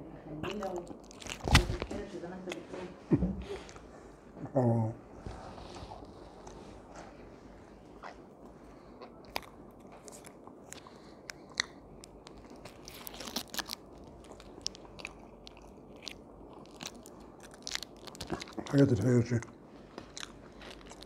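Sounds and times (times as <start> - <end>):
man chewing crunchy food: 0.5 - 1.7, 7.7 - 21.0.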